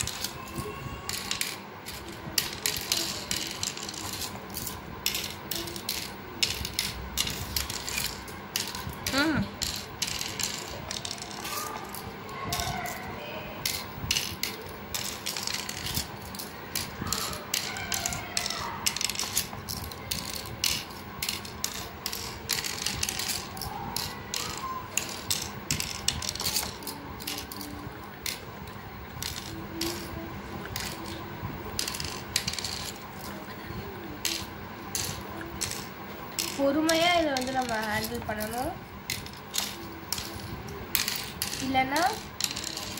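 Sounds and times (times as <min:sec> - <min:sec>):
shells clicking into wooden cups: 0:00.0 - 0:42.9.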